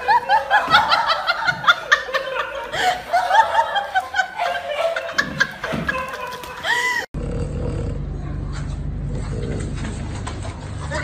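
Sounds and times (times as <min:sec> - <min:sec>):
high-pitched giggling laughter: 0:00.0 - 0:07.1.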